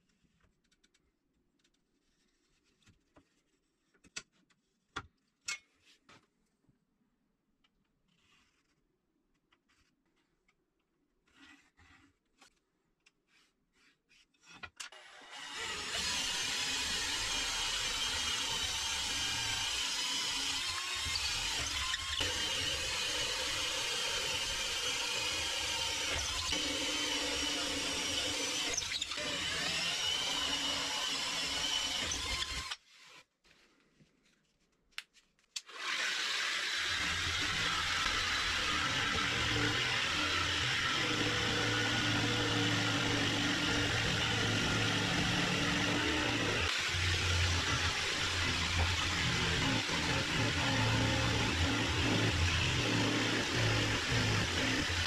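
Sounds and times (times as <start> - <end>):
electric power tool motor running: 15.3 - 32.7, 35.7 - 55.0.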